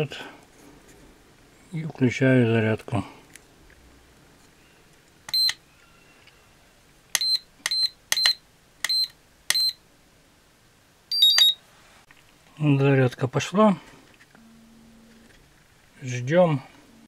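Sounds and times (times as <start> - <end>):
short high beeps: 7.2 - 9.8, 11.1 - 11.6
quick electronic chirp: 11.1 - 11.6.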